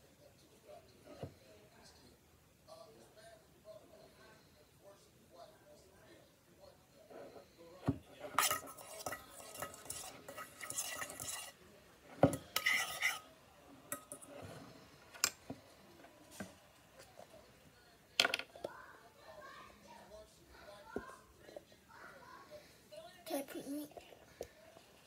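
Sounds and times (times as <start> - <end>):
fork scraping metal pot: 8.1 - 13.3, 13.9 - 15.4.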